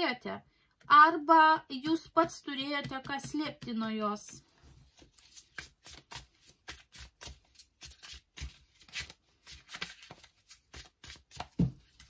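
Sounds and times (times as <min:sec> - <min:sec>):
cards being shuffled: 0:04.8 - 0:12.0.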